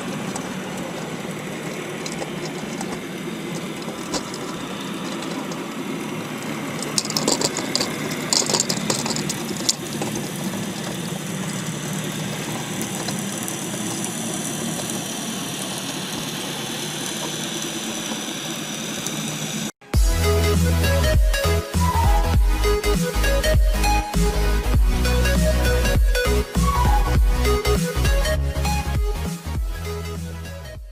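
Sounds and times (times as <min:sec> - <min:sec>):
engine drone underwater: 0:00.0 - 0:19.7
music: 0:19.8 - 0:30.9.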